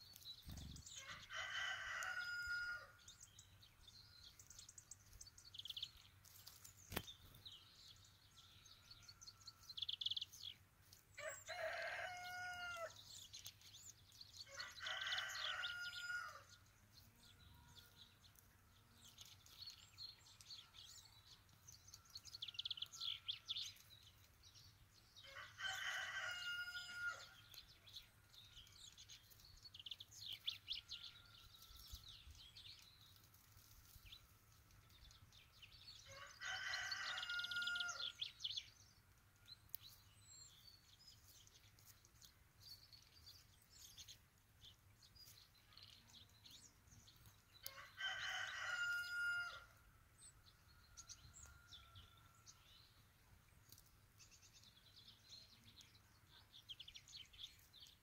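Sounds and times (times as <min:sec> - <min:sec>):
small birds chirping: 0:00.0 - 0:58.0
rooster crowing: 0:01.0 - 0:03.0, 0:11.2 - 0:13.0, 0:14.5 - 0:16.4, 0:25.3 - 0:27.3, 0:36.1 - 0:38.0, 0:47.7 - 0:49.7.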